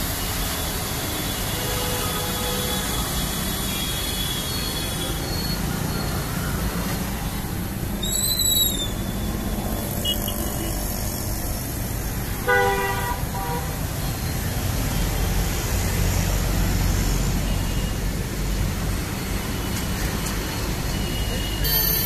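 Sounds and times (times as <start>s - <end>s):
short high squeal: 3.7s - 6.6s, 8.0s - 10.7s, 21.0s - 22.0s
vehicle horn toots: 12.4s - 13.8s.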